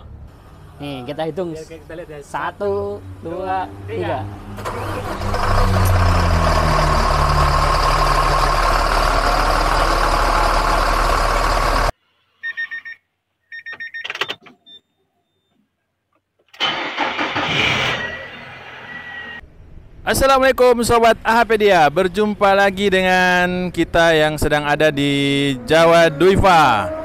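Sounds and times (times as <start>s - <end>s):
diesel bus engine running: 4.5s - 11.9s.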